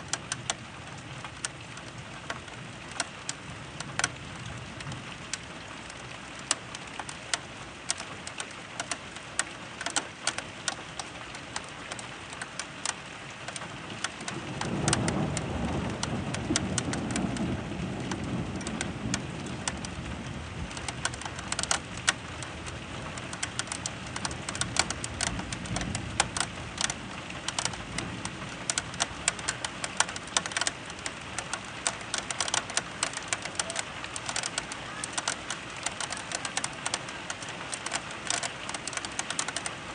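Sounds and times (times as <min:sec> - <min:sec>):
rain drops tapping: 0:00.0 - 0:39.9
low roll of thunder: 0:14.3 - 0:20.8.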